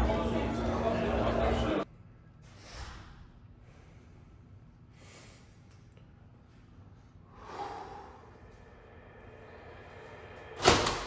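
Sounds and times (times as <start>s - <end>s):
person breathing softly: 7.2s - 10.5s.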